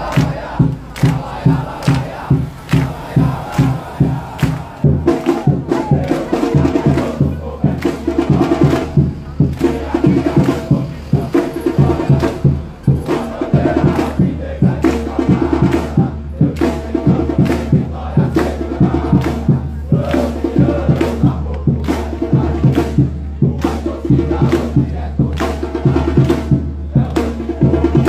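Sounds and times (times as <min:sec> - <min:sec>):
crowd chanting and singing: 0:00.0 - 0:28.0
steady rhythmic drum beat: 0:00.0 - 0:28.0.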